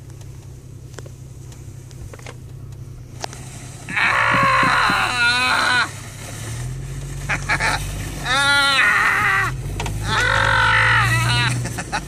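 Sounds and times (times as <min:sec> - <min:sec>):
engine humming low: 0:00.0 - 0:12.0
people whooping and hollering: 0:08.3 - 0:11.6.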